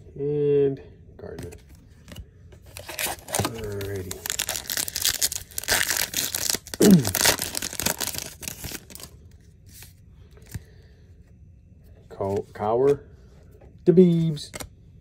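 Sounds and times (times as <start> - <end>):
wrapper tearing and crinkling: 2.7 - 9.1.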